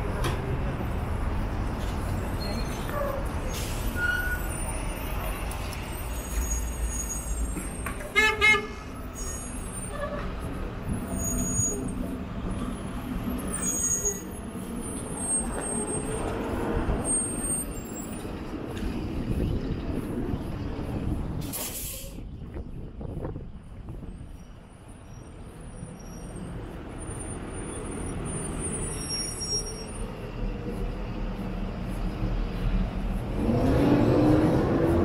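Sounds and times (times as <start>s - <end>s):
traffic rumble: 0.0s - 35.0s
vehicle horn honks: 8.1s - 8.8s.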